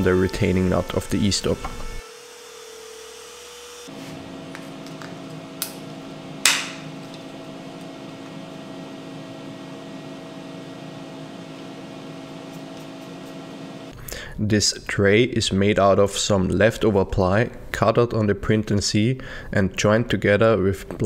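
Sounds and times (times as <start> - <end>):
router spindle whine: 0.0 - 6.2
steady hum: 3.9 - 15.7.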